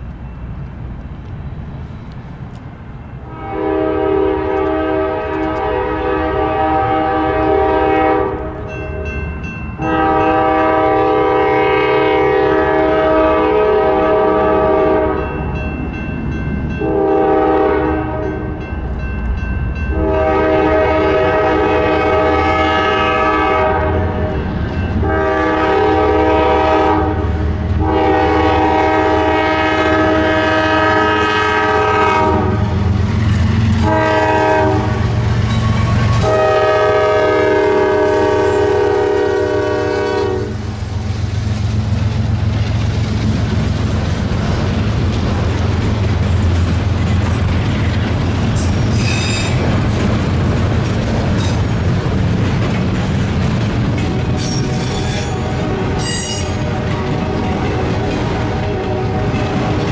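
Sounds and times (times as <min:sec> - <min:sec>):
locomotive air horn blasts: 0:03.2 - 0:09.1, 0:09.8 - 0:15.2, 0:16.8 - 0:18.5, 0:19.9 - 0:24.4, 0:25.0 - 0:33.0, 0:33.8 - 0:40.7, 0:48.9 - 0:49.6, 0:54.2 - 0:59.9.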